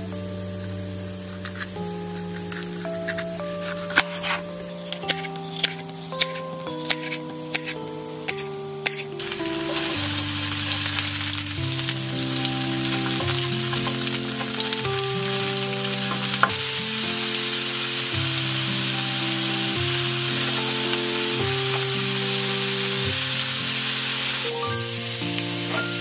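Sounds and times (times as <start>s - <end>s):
background music: 0.0s - 26.0s
vegetables sizzling in frying pan: 0.0s - 26.0s
knife chopping on wooden board: 5.1s - 9.1s.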